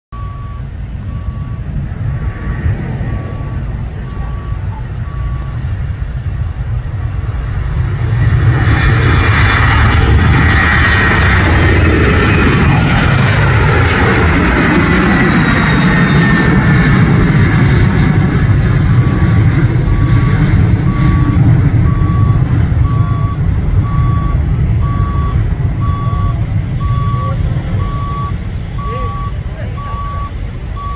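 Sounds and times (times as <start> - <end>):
faint beep: 0.1 - 1.8, 3.0 - 5.9, 19.0 - 30.9
low rumble: 0.1 - 30.9
jet engines at takeoff: 0.2 - 30.9.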